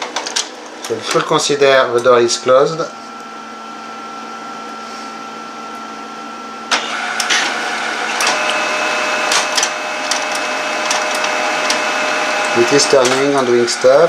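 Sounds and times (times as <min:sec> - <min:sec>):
printer motors clacking and whirring: 0:00.0 - 0:03.2, 0:06.7 - 0:14.0
printer fan hum: 0:00.0 - 0:14.0
printer clicks: 0:06.7 - 0:13.8.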